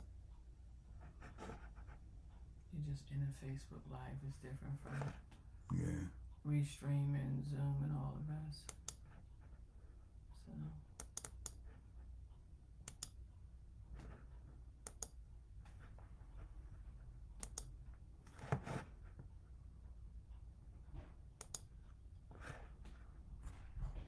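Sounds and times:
low room hum: 0.0 - 24.0
sharp computer clicks: 8.6 - 9.0, 10.9 - 11.6, 12.8 - 13.2, 14.8 - 15.2, 17.4 - 17.8, 21.4 - 21.7.

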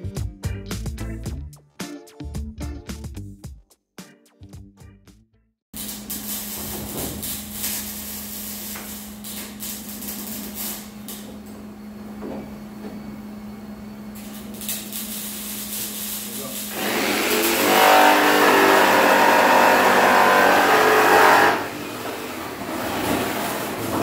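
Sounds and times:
jigsaw cutting steel: 14.7 - 24.0.

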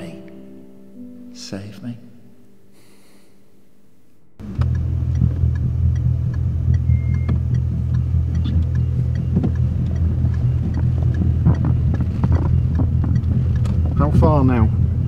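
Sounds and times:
car engine and road noise: 4.4 - 15.0.

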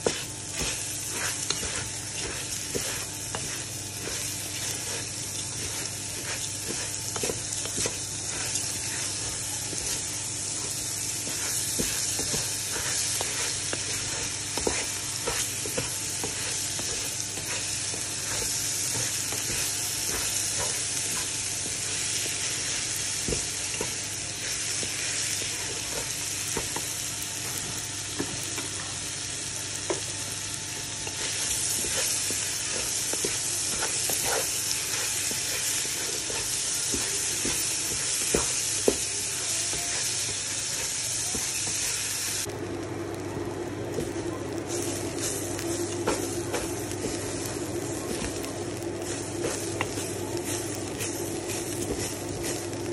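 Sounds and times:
spatula scraping a pan: 0.0 - 26.1, 31.0 - 42.0
food sizzling in oil: 0.0 - 52.9.

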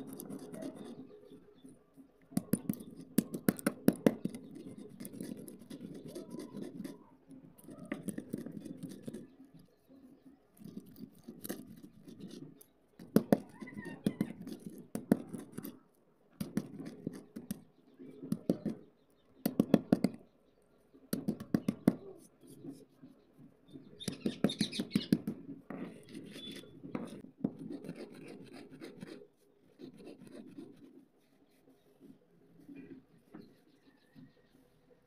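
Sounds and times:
stone crunching and scraping: 10.6 - 15.8.

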